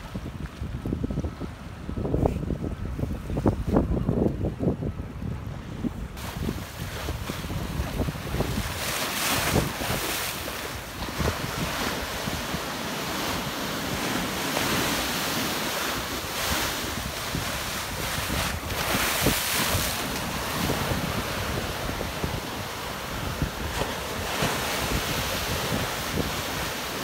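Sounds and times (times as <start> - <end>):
wind buffeting microphone: 0.0 - 27.0
sea waves breaking: 5.5 - 27.0.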